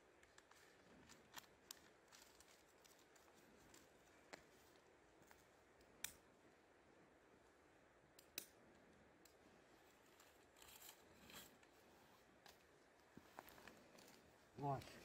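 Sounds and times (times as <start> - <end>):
soft rustling handling noises: 0.0 - 5.9, 9.2 - 15.0.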